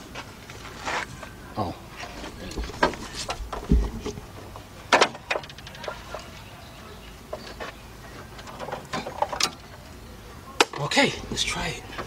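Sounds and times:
low thump: 0:03.5 - 0:04.2
handling knocks and clicks: 0:07.3 - 0:09.9.

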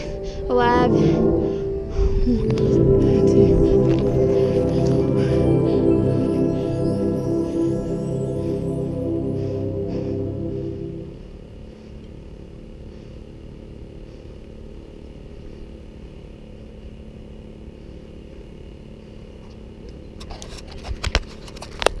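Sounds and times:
wind rumble: 0:00.0 - 0:11.7.

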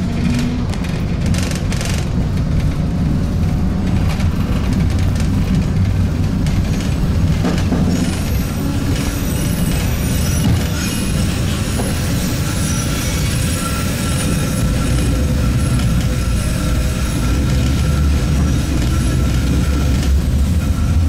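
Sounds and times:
tram running gear rumble: 0:00.0 - 0:21.0
wheel squeal: 0:07.4 - 0:21.0.

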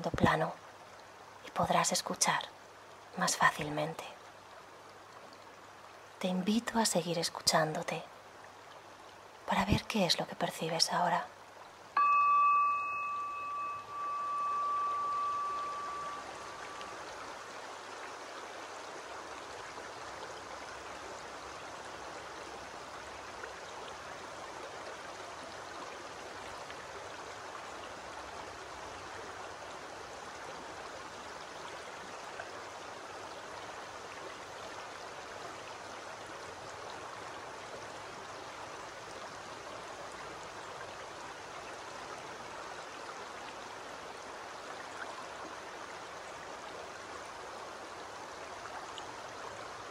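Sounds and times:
stream babbling over stones: 0:00.0 - 0:49.9
chime ringing: 0:12.0 - 0:17.1.

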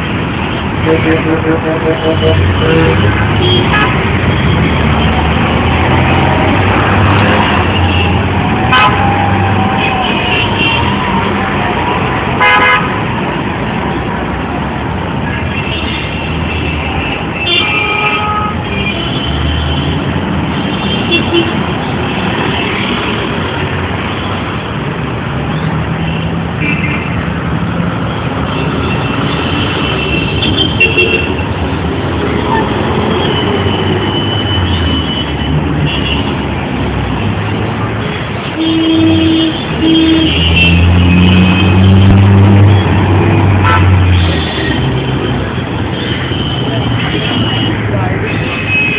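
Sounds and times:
road traffic rumble: 0:00.0 - 0:48.9
car horn toots: 0:00.8 - 0:04.0, 0:38.6 - 0:44.5.

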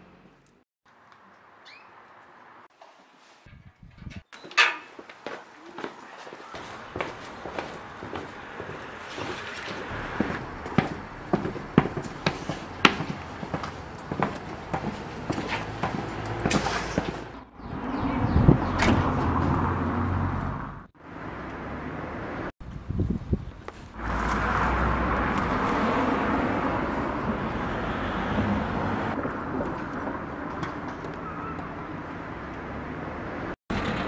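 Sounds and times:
traffic hum: 0:00.0 - 0:34.0.

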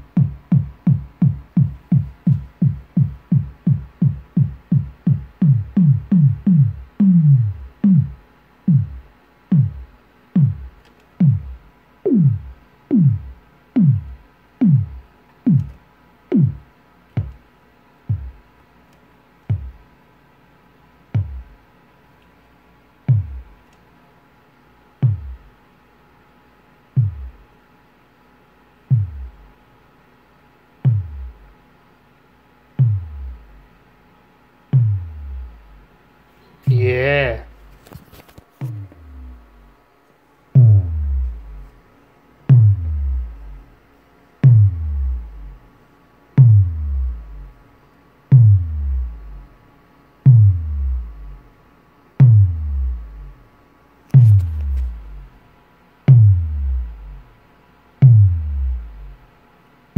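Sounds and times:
synthesized kick drum hits: 0:00.0 - 0:17.4, 0:18.1 - 0:18.5, 0:19.5 - 0:19.8, 0:21.2 - 0:21.6, 0:23.1 - 0:23.6, 0:25.0 - 0:25.5, 0:27.0 - 0:27.4, 0:28.9 - 0:29.5, 0:30.8 - 0:31.6, 0:32.8 - 0:33.8, 0:34.7 - 0:36.0, 0:38.6 - 0:39.8, 0:40.6 - 0:41.8, 0:42.5 - 0:43.7, 0:44.4 - 0:45.7, 0:46.4 - 0:47.6, 0:48.3 - 0:49.6, 0:50.2 - 0:51.5, 0:52.2 - 0:53.5, 0:54.1 - 0:55.4, 0:56.1 - 0:57.4, 0:58.0 - 0:59.3.

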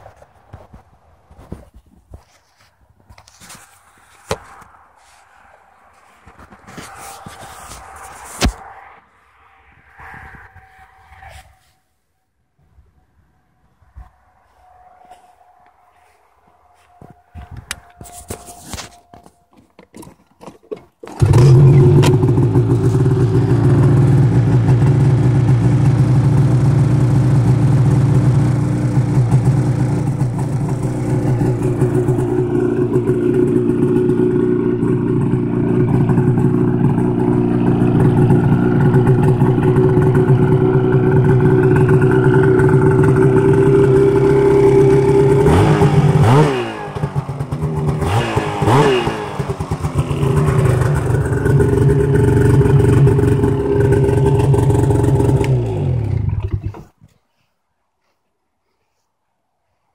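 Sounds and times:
snowmobile engine starting and idling: 0:20.9 - 0:57.0
electric starter cranking: 0:21.0 - 0:22.8
engine revving: 0:21.1 - 0:56.8.

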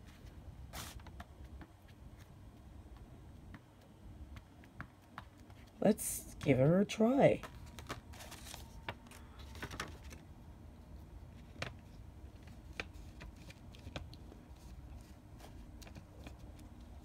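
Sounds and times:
low room hum: 0:00.0 - 0:17.0.

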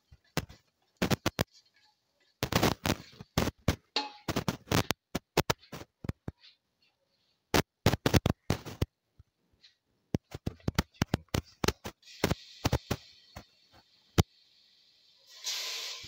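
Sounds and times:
chicken sizzling in hot pan: 0:12.0 - 0:16.0.

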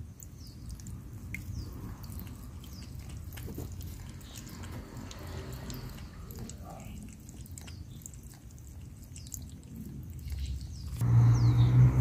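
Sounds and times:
cat lapping water: 0:00.0 - 0:11.0.

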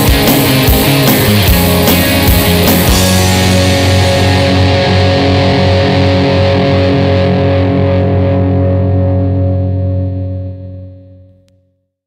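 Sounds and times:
drum hit: 0:00.0 - 0:07.0
distorted electric guitar chord: 0:00.0 - 0:11.3.

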